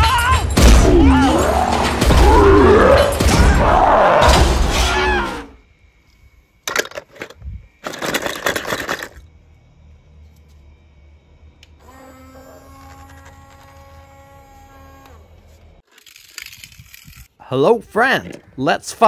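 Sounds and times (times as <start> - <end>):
crashing and breaking impacts: 0.6 - 5.5.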